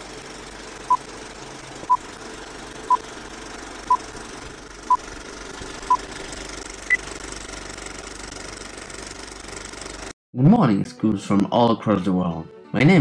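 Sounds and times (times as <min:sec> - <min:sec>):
film projector whirring: 0:00.0 - 0:10.2.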